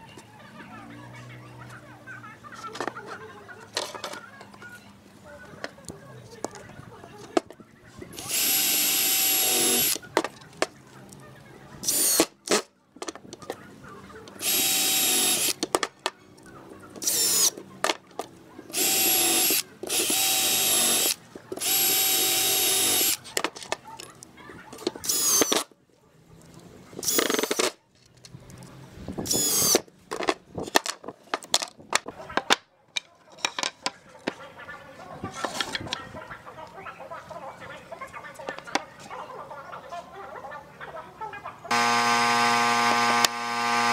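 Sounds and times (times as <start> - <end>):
clicks and knocks of handling: 2.6 - 4.7, 12.5 - 13.6, 15.6 - 16.5, 23.3 - 25.6, 30.1 - 34.4
cordless drill whine: 8.2 - 10.0, 11.8 - 12.2, 14.4 - 15.6, 17.0 - 17.5, 18.7 - 23.2, 25.0 - 25.5, 29.3 - 29.8, 41.7 - 43.9.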